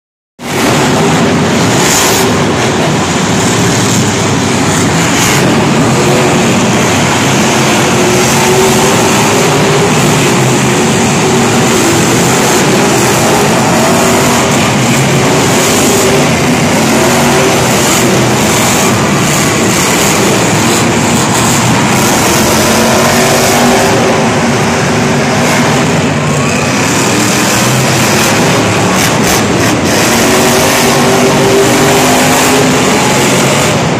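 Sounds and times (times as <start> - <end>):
truck engines revving: 0.4 - 33.9.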